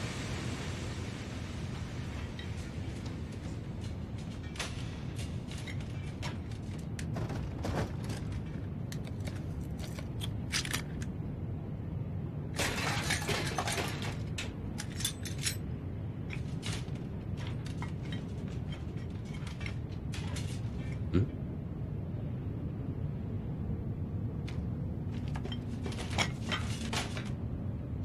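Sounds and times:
steady low rumble: 0:00.0 - 0:28.0
scrap metal clinking and clattering: 0:03.8 - 0:11.0, 0:12.6 - 0:21.0, 0:25.1 - 0:27.4.

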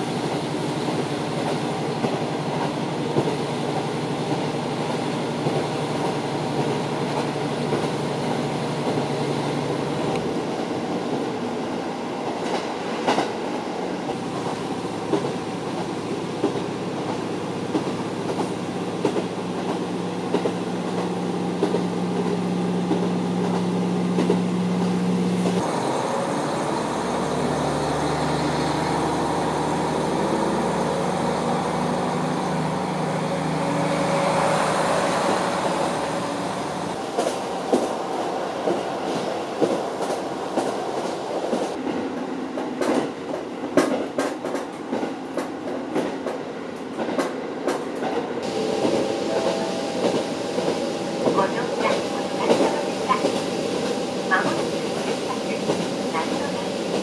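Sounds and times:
diesel engine drone: 0:25.2 - 0:37.2, 0:48.4 - 0:53.1.

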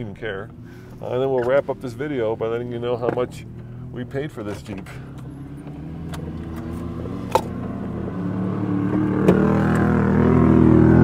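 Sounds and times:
utility vehicle engines driving past: 0:04.6 - 0:11.0.

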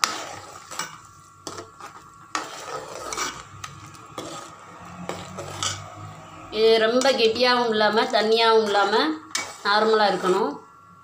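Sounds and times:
spoon scraping and knocking pot: 0:00.0 - 0:06.0, 0:08.6 - 0:10.4
metal spoon stirring thick gravy: 0:00.0 - 0:06.3, 0:08.0 - 0:10.6.

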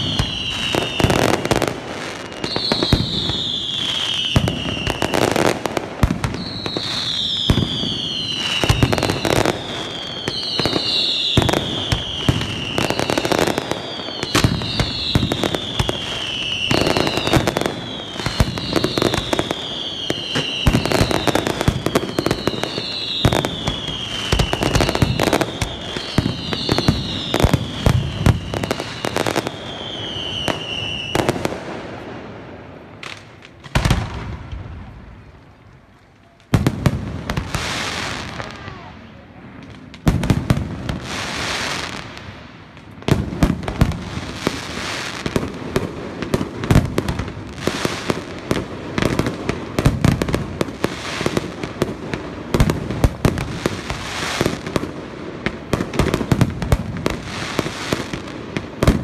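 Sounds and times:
firework whistle falling in pitch: 0:02.1 - 0:05.5.

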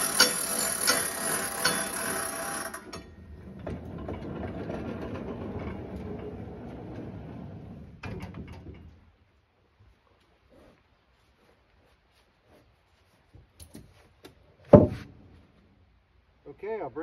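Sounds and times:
bandsaw mill whining: 0:00.0 - 0:07.8
steady mechanical rattle: 0:00.0 - 0:09.0.

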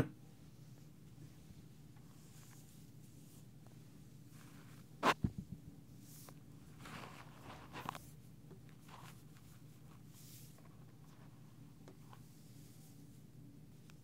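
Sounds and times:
comb brushing through hair: 0:06.0 - 0:11.4.

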